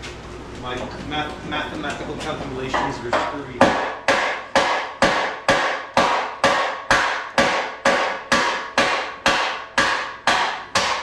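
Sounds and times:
hammer striking steel: 0:02.7 - 0:11.0.

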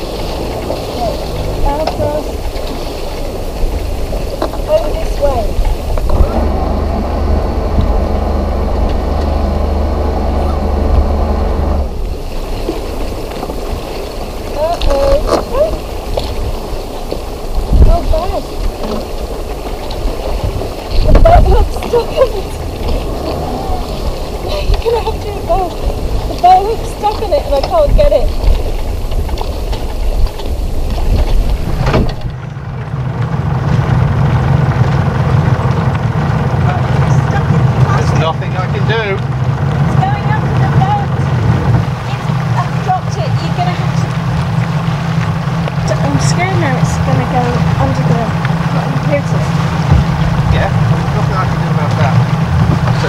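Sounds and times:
diesel engine rumbling: 0:00.0 - 0:53.0
water washing: 0:00.0 - 0:53.0
wind: 0:00.0 - 0:53.0.

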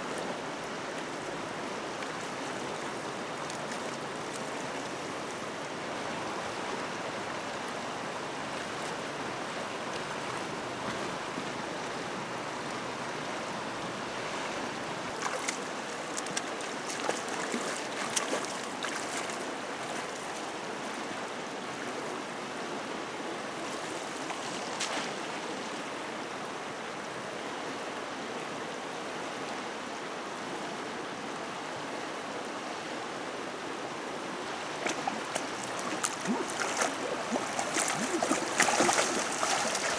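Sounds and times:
river rushing: 0:00.0 - 0:39.9
sharp water splashes: 0:15.2 - 0:19.4, 0:34.8 - 0:39.9.

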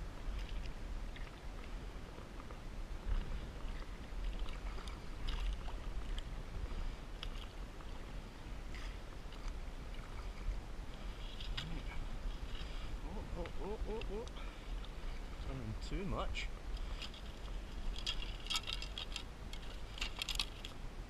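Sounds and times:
steady low rumble: 0:00.0 - 0:21.0
paddle splashing in water: 0:03.1 - 0:15.5.

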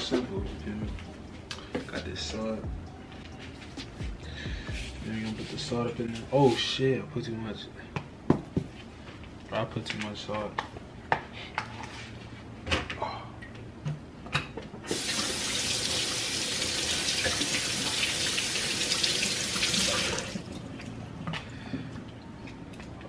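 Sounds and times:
faucet running into sink: 0:14.9 - 0:20.5.

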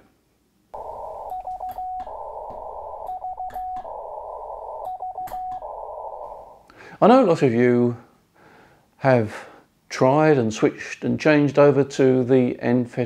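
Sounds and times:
morse code tone: 0:00.8 - 0:06.6
radio band hiss: 0:00.8 - 0:06.7
static crackles: 0:00.8 - 0:06.8.

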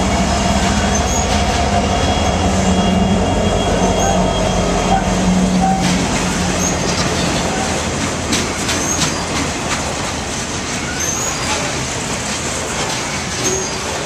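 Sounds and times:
boxcars rumbling over rails: 0:00.0 - 0:14.0
diesel locomotive engine drone: 0:00.0 - 0:14.0
train wheel clacks: 0:04.9 - 0:14.0
faint wheel squeals: 0:10.9 - 0:11.7, 0:13.2 - 0:14.0.

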